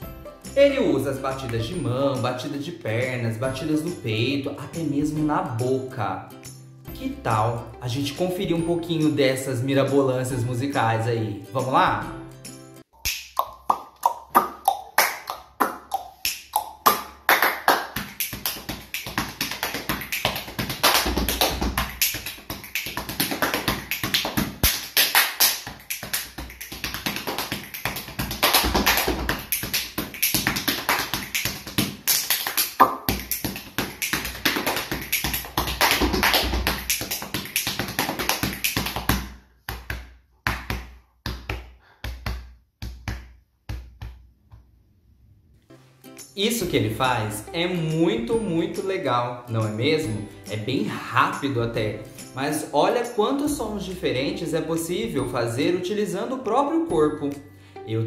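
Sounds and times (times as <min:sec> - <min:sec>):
mouth sounds: 0:13.0 - 0:17.2
hand claps and body slaps: 0:13.0 - 0:44.8.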